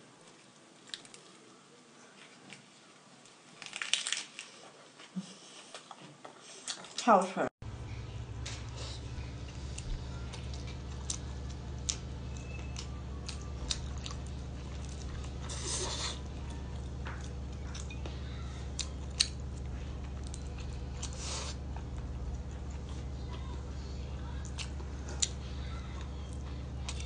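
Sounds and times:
steady low hum: 7.6s - 27.0s
slurping: 8.6s - 16.9s, 20.4s - 22.0s.

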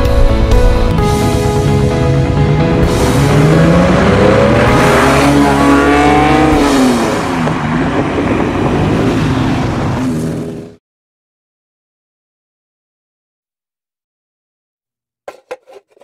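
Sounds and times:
car engine accelerating past: 2.9s - 10.7s.

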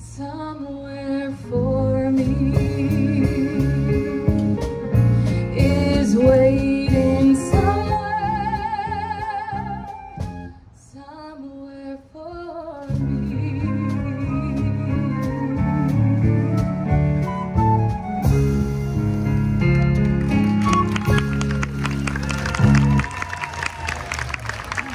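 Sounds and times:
woman singing: 0.0s - 4.6s, 5.5s - 10.2s, 10.8s - 16.9s
live band with drums and guitar: 1.0s - 10.9s, 12.8s - 24.9s.

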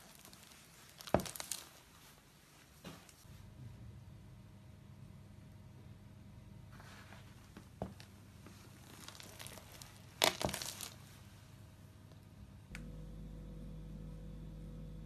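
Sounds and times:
brittle object cracking underfoot: 0.0s - 1.8s, 8.8s - 11.0s.

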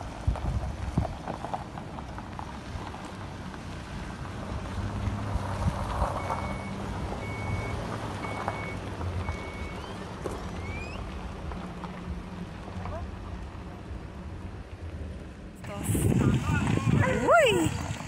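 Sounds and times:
truck engine running low: 0.0s - 18.0s
high electronic beeps: 6.2s - 11.1s.

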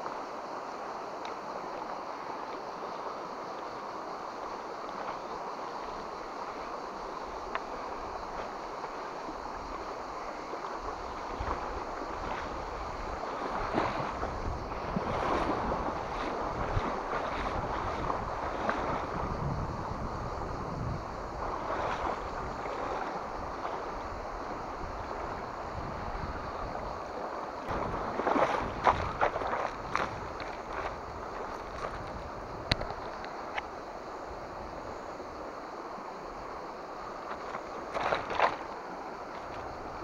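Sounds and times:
river rushing over stones: 0.0s - 40.0s
wind on microphone: 10.8s - 35.4s.

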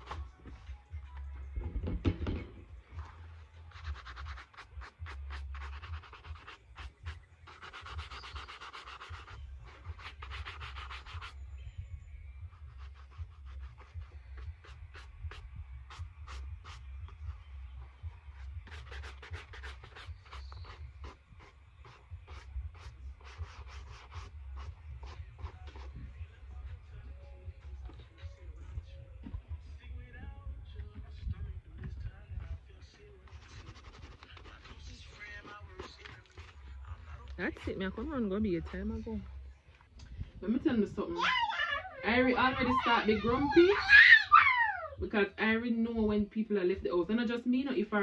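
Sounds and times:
shoe brush rasping strokes: 3.0s - 11.4s, 12.4s - 26.9s, 33.2s - 37.0s, 42.0s - 44.0s.

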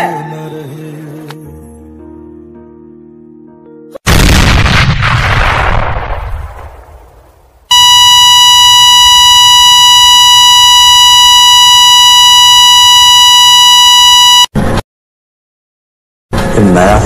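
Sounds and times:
explosion tail: 4.1s - 7.5s
steady electronic beep: 7.7s - 14.5s.

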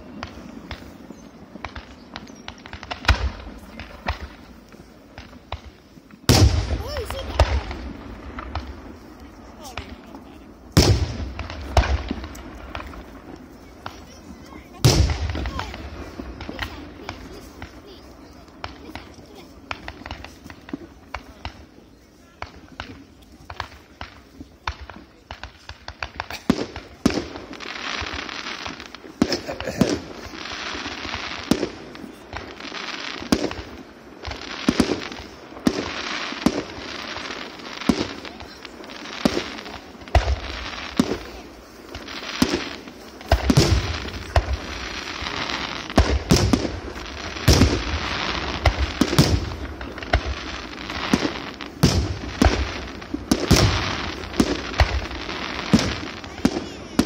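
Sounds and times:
fireworks bangs: 0.0s - 57.0s
fireworks crackle: 0.0s - 57.0s.

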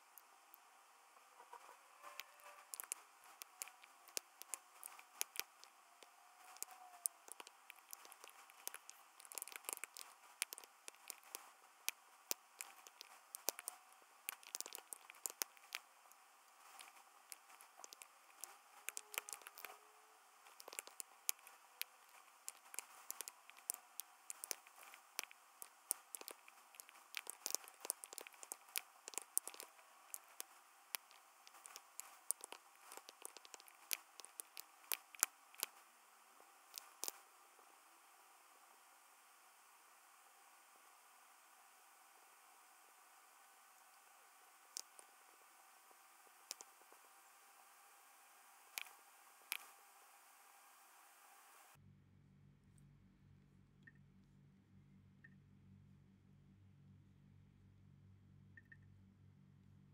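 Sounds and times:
keyboard typing: 2.2s - 15.9s, 16.6s - 19.8s, 20.4s - 35.8s, 36.8s - 37.2s, 46.5s - 46.8s.

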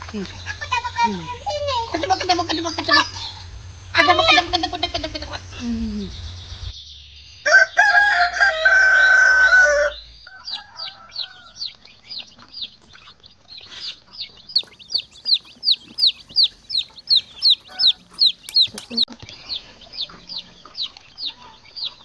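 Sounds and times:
rooster crowing: 7.4s - 11.7s, 14.6s - 19.0s.

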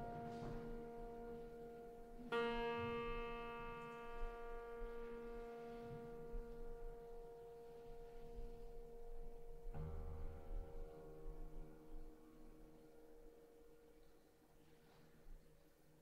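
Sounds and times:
piano string ringing: 0.0s - 14.1s
lower piano tone: 0.0s - 16.0s.

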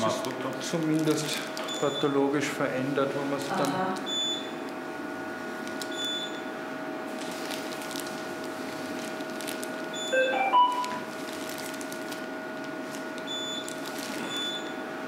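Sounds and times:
steady electronic hum: 0.0s - 15.0s
short high beep: 10.0s - 11.0s
electronic beeps stepping in pitch: 10.1s - 11.0s.

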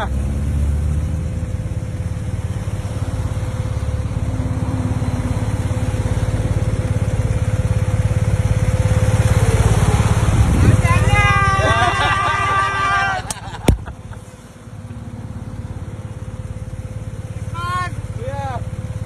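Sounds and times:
motorcycle engine running: 0.0s - 19.0s
wind noise on microphone: 10.3s - 11.1s.

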